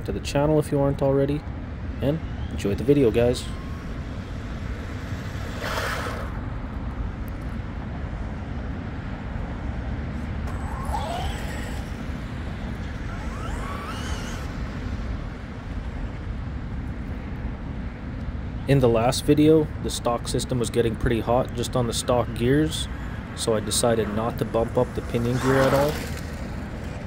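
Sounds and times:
steady rushing noise: 1.4 - 27.0
rc truck motor whining: 2.8 - 6.4, 10.2 - 15.8, 23.7 - 27.0.

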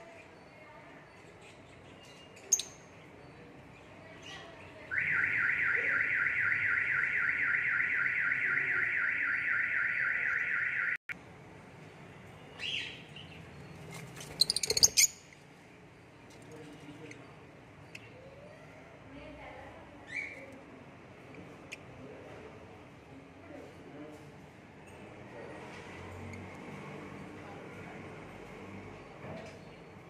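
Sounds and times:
bird chirping trill: 1.5 - 3.5, 12.5 - 15.3.

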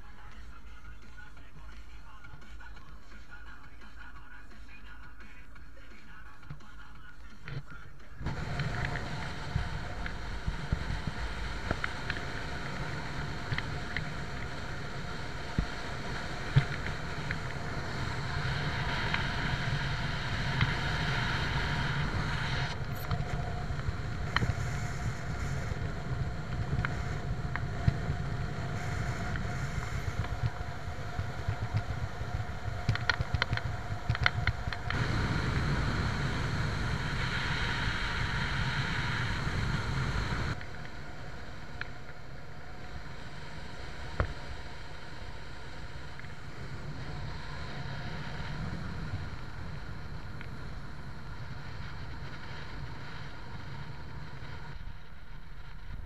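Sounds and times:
wind and road noise: 0.0 - 56.0
light ticks: 8.6 - 10.2, 11.6 - 14.6, 16.4 - 17.6, 24.2 - 24.9, 26.5 - 28.0, 32.8 - 35.0.

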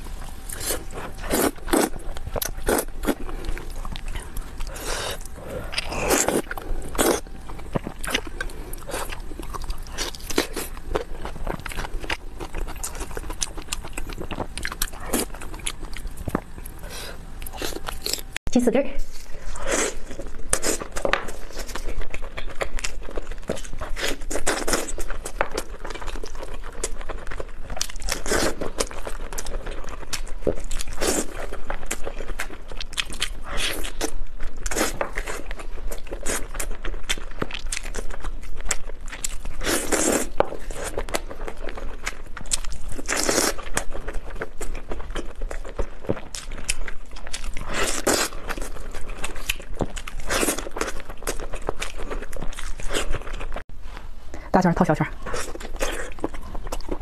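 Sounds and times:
chewing sticky meat: 0.0 - 18.4, 19.2 - 53.7, 55.1 - 57.0.

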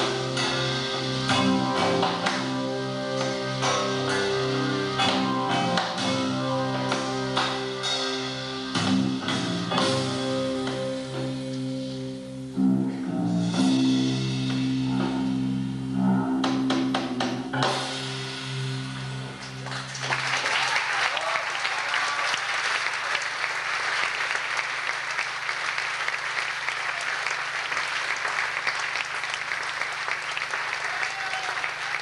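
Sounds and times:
live band playing: 0.0 - 20.1
audience applauding: 19.5 - 32.0.

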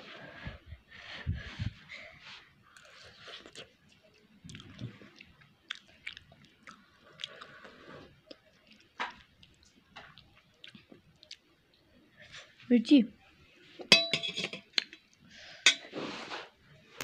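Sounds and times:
person chewing noodles: 2.6 - 11.5.

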